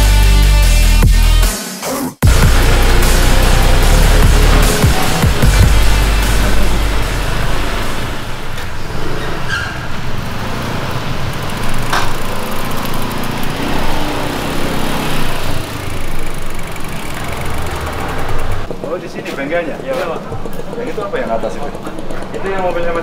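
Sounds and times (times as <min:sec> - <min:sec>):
engine running: 0:02.2 - 0:18.7.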